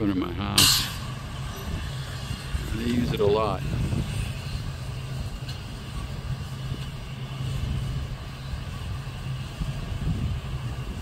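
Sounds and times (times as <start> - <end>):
truck diesel engines idling: 0.0 - 11.0.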